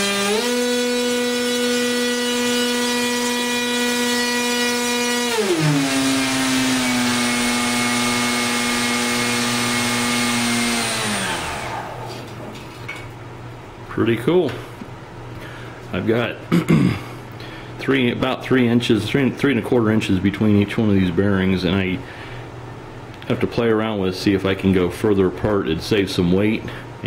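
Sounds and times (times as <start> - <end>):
electric motor whine: 0.0 - 12.2.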